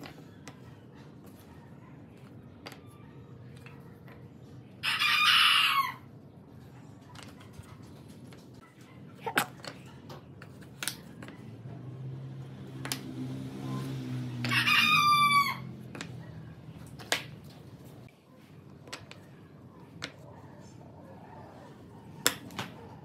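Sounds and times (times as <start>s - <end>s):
rooster crowing: 4.8s - 6.1s, 14.4s - 15.8s
wooden tiles clacking on board: 15.9s - 16.2s.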